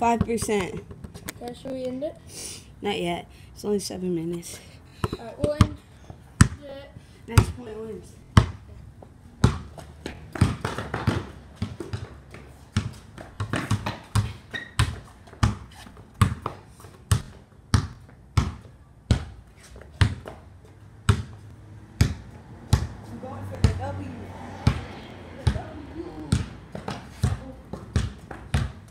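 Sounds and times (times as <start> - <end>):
basketball bouncing on concrete: 0.0 - 1.4, 5.0 - 5.8, 6.4 - 6.7, 7.3 - 8.6, 9.4 - 24.0, 24.6 - 28.9.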